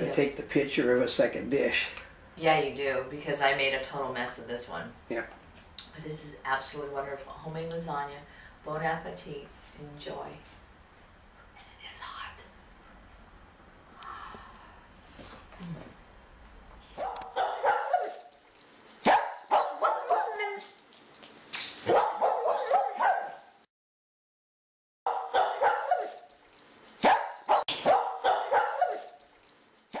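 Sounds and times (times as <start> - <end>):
dogs barking and yipping: 16.9 - 18.4, 19.0 - 20.8, 21.8 - 23.5, 25.1 - 26.4, 27.0 - 29.3.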